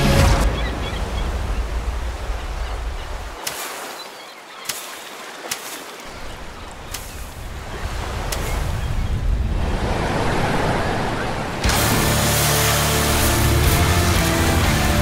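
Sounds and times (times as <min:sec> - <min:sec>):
ocean surf washing over beach: 0:06.0 - 0:15.0.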